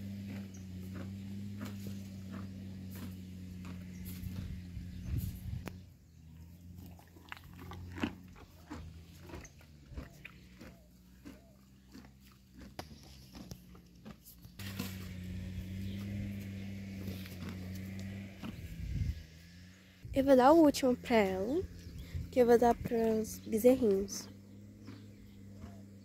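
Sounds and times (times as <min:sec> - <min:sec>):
horse chewing fodder: 0:00.0 - 0:19.6, 0:20.3 - 0:26.0
steady low hum: 0:00.0 - 0:26.0.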